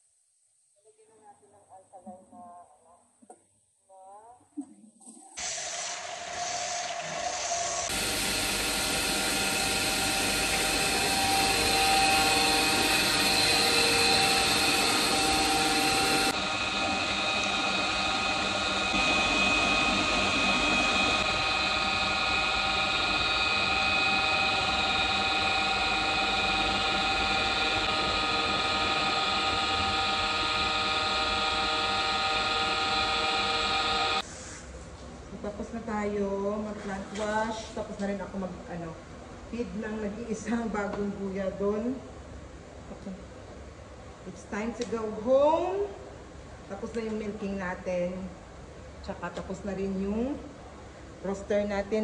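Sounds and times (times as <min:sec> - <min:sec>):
water gushing through machinery: 0:05.2 - 0:25.8
machinery hum: 0:06.9 - 0:34.2.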